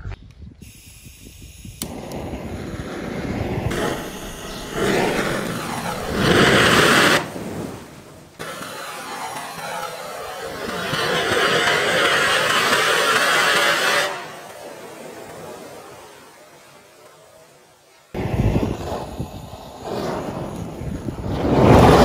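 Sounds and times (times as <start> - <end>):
sparklers burning with hiss: 0.6 - 22.0.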